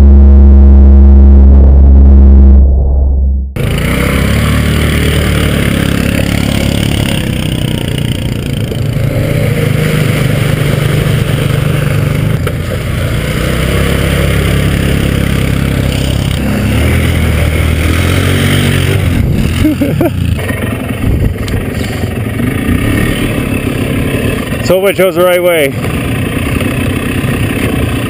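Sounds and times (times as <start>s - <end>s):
quad engine running under load: 3.6s - 28.0s.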